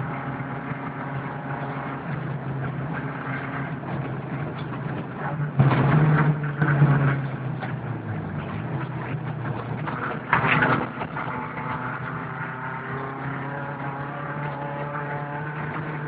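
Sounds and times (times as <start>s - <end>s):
car engine under load: 0.0s - 16.0s.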